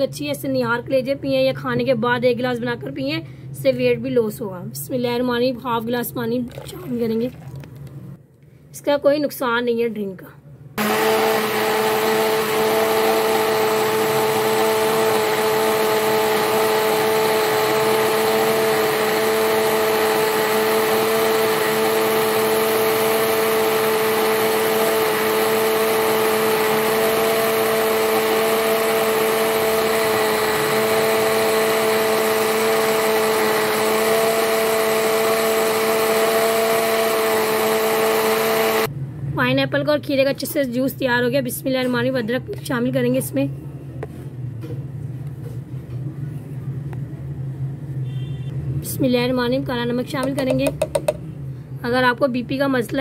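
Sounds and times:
electric blender running: 10.8s - 38.9s.

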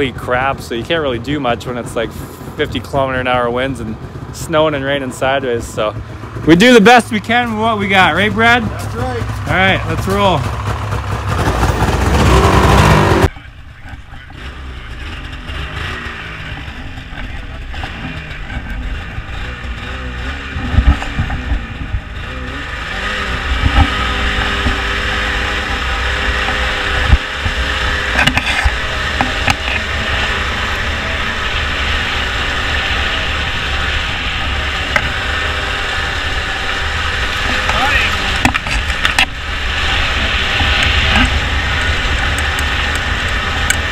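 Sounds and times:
snowmobile engine running: 0.0s - 43.9s
sharp thumps: 15.2s - 43.9s.

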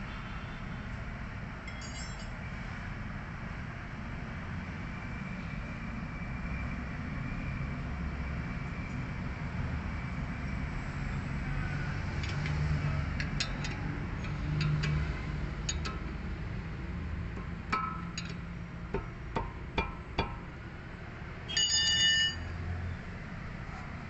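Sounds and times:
wrench clicking on bolt: 12.2s - 12.6s, 13.2s - 15.0s, 15.7s - 16.1s.

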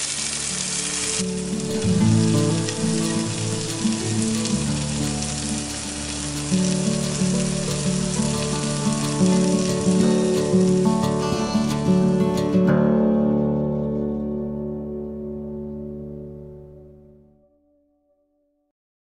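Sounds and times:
chicken sizzling on grill: 0.0s - 12.2s
background music of held notes: 0.1s - 17.4s.

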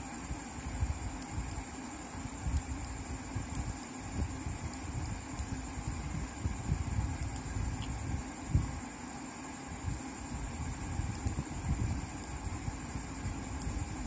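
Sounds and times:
faint high whine: 0.0s - 14.0s
low rumbling room noise: 0.0s - 14.0s
faint ticks: 1.1s - 1.7s, 2.4s - 4.0s, 4.6s - 5.6s, 7.1s - 8.0s, 11.0s - 11.4s, 12.2s - 12.5s, 13.3s - 13.8s.

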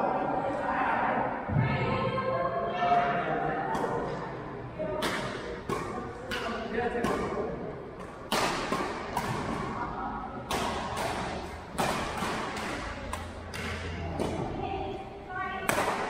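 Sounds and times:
rackets striking shuttlecock: 5.0s - 14.6s, 15.6s - 16.0s.

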